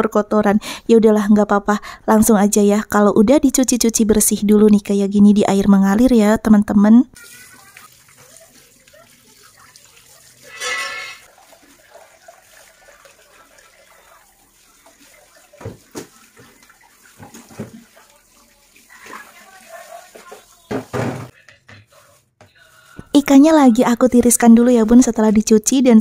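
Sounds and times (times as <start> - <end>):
tap water running into sink: 7.2 - 21.3
plastic knocking against sink: 15.6 - 16.6, 17.2 - 17.8, 20.2 - 21.8.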